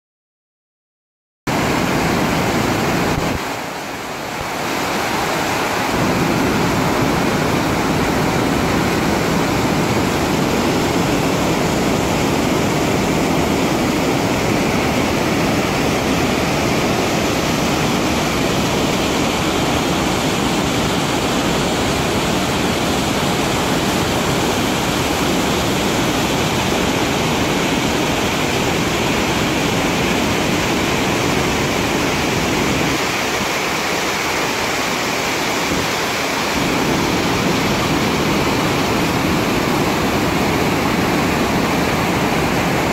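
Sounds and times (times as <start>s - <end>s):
creek rushing over boulders: 1.5s - 42.9s.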